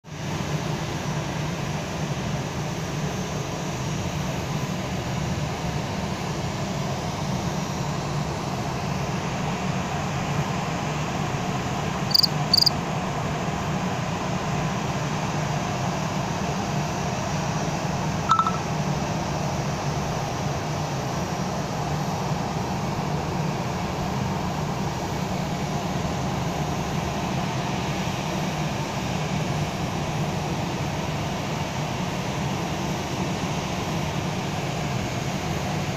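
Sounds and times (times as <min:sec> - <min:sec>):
jet airliners taxiing rumble: 0:00.2 - 0:35.9
brief tone: 0:18.3 - 0:18.7
short high beeps: 0:18.3 - 0:18.7.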